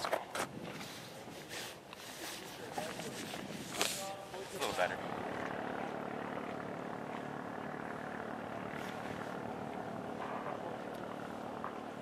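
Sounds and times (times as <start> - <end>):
engine droning: 2.6 - 12.0.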